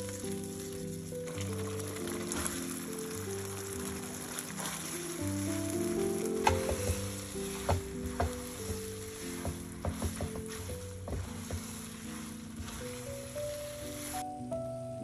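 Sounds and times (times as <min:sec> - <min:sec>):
food sizzling in a frying pan: 0:00.0 - 0:14.2
soft background music: 0:00.0 - 0:15.0
spatula knocking and scraping pan: 0:05.9 - 0:14.2.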